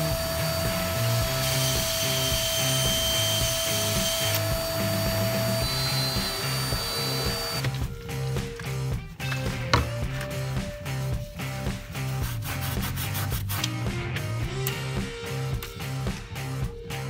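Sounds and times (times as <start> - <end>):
power drill with hole saw: 0.0 - 7.7
vacuum cleaner running: 0.0 - 7.7
background music with beat: 0.0 - 17.0.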